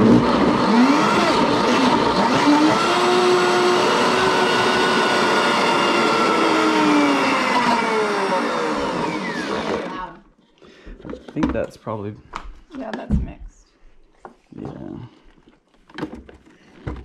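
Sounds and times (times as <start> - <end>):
blender motor whining: 0.0 - 10.3.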